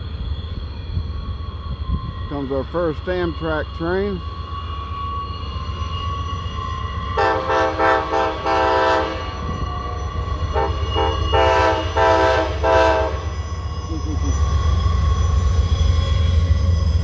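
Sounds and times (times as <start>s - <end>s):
train rumble: 0.0s - 17.0s
train chime horn blasts: 4.9s - 14.4s.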